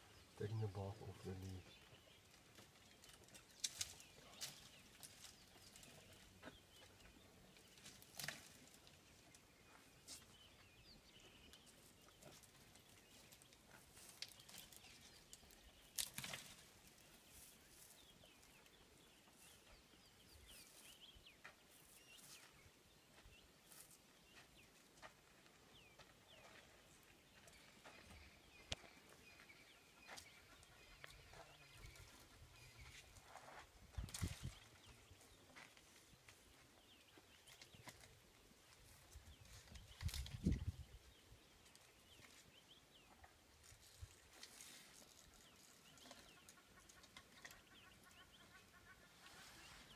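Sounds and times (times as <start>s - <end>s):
twigs and branches snapping: 3.0s - 5.1s, 7.9s - 8.8s, 14.1s - 16.6s.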